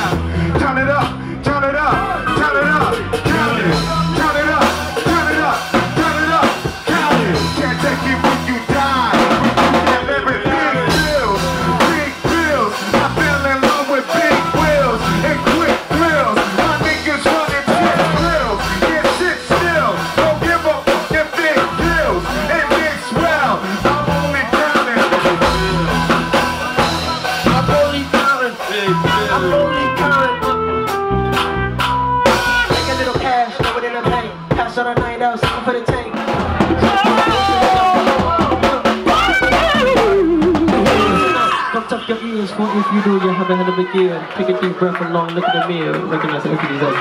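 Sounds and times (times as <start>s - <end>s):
man singing into a microphone: 0.0s - 30.6s, 32.7s - 42.0s
live band music: 0.0s - 47.0s.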